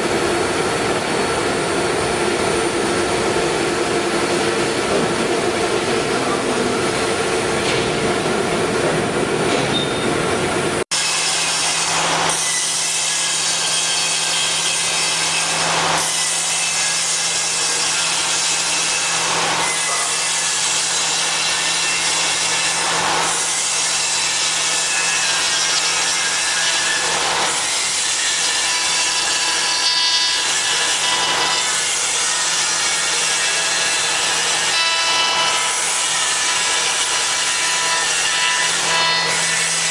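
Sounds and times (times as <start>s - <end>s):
router milling wood: 11.0s - 39.9s.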